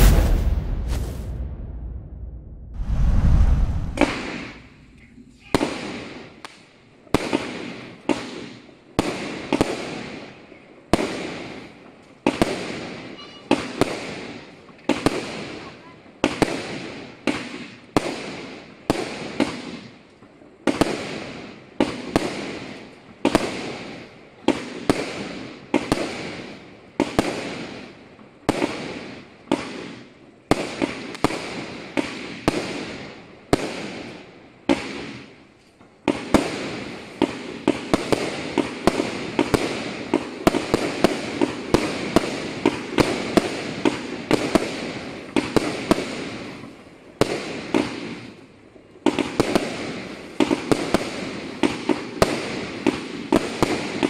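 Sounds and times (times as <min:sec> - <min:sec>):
firework barrage bangs: 0:00.0 - 0:06.3.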